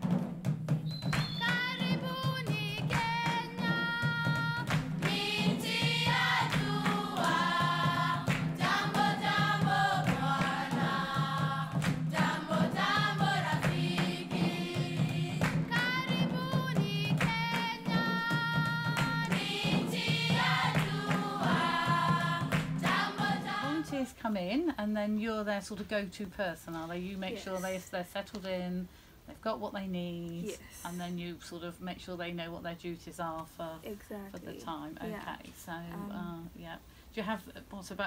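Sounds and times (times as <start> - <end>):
choir singing held notes: 3.0 - 24.1.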